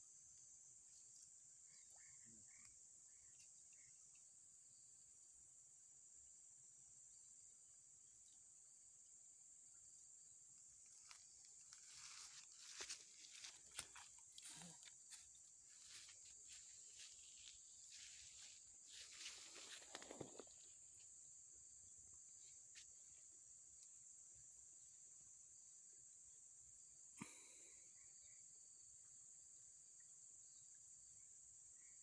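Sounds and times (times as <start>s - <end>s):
person rustling on grass: 11.6s - 20.6s.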